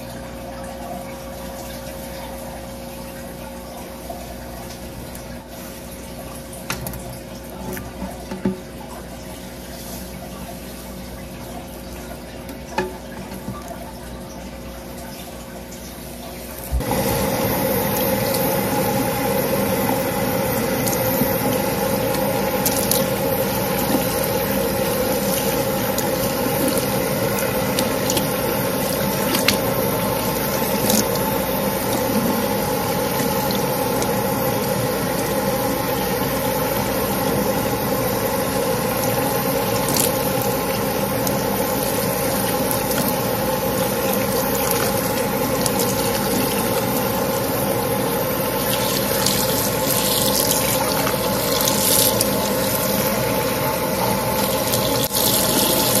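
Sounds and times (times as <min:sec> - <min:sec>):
tap water splashing on hair: 0:22.1 - 0:31.3, 0:39.8 - 0:40.4, 0:48.6 - 0:52.4.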